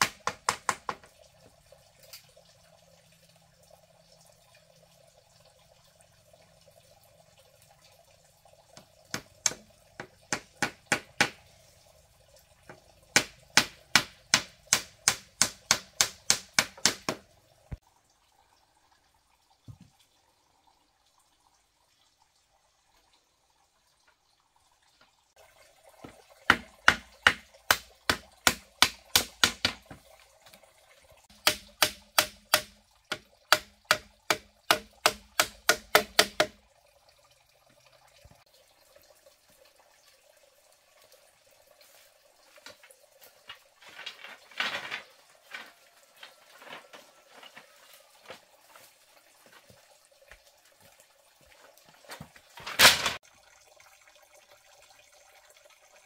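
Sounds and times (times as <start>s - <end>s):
hammering on bamboo: 0.0s - 1.2s, 8.8s - 11.6s, 12.7s - 17.3s, 26.1s - 30.1s, 31.3s - 36.6s
bamboo pieces clattering: 42.6s - 48.4s, 52.4s - 53.2s.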